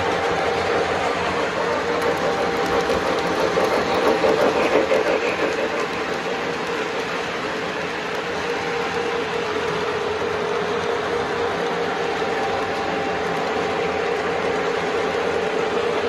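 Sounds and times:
model train wheels rumbling: 0.0s - 16.0s.

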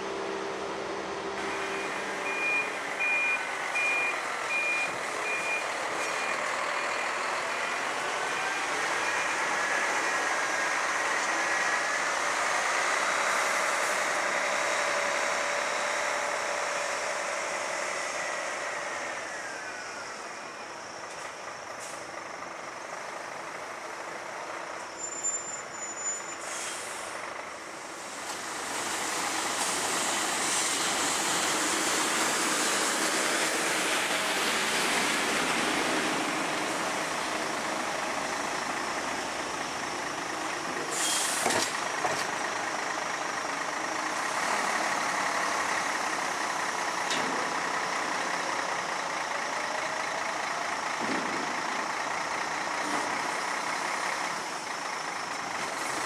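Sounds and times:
truck engine and hydraulic whine: 0.0s - 56.0s
air brakes hissing: 21.8s - 22.1s, 24.9s - 27.3s, 29.6s - 31.4s, 40.8s - 41.8s.

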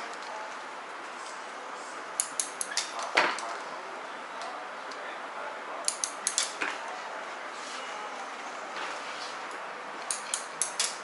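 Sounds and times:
scissors snipping hair: 5.9s - 6.5s.

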